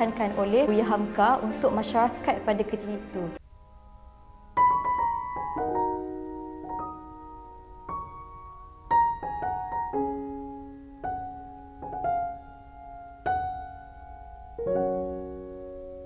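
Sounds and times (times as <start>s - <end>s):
slow solo piano: 4.6s - 16.0s.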